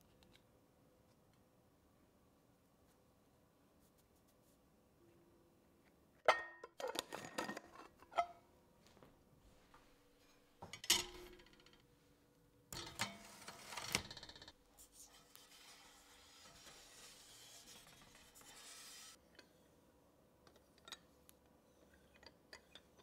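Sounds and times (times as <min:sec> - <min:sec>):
kitchen things clicking and knocking: 0:10.6 - 0:11.8.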